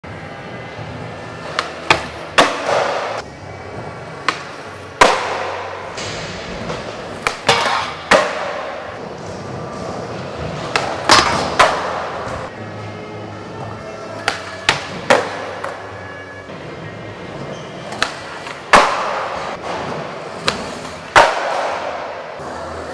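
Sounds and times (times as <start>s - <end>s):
skateboard wheels rolling: 0.5s - 12.5s
skateboards slapping down: 18.0s - 22.1s.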